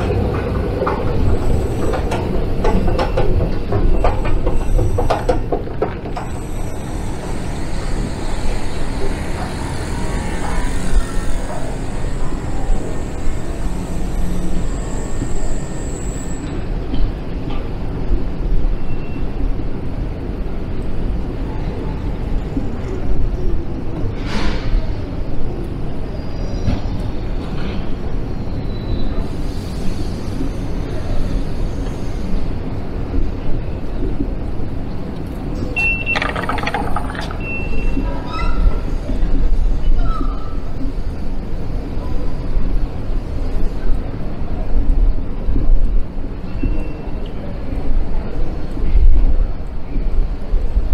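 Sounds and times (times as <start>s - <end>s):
train running through station: 0.0s - 50.9s
station rumble and hiss: 6.0s - 18.4s
rapid clattering: 36.0s - 37.5s.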